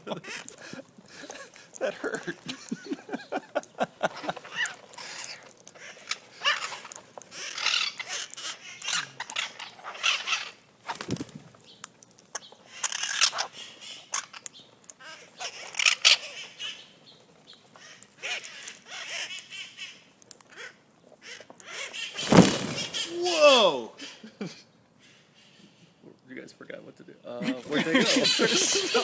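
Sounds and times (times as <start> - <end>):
parakeets squawking: 0.0 - 11.0, 11.7 - 23.2, 27.9 - 29.0
rush of wings: 4.0 - 11.6, 22.0 - 23.8.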